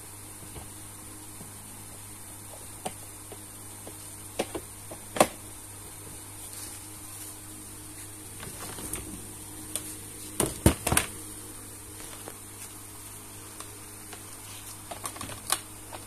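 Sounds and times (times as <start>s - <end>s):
steady hum: 0.0s - 16.0s
plastic clicks and knocks: 4.4s - 5.4s.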